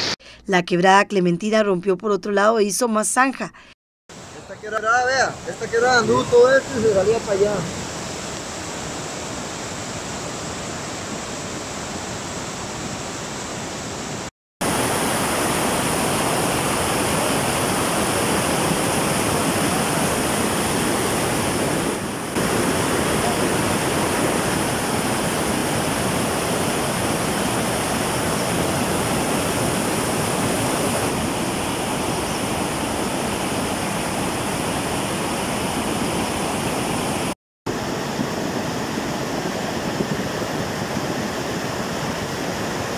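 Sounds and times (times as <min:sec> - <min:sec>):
water rushing over rocks: 0:14.6 - 0:42.9.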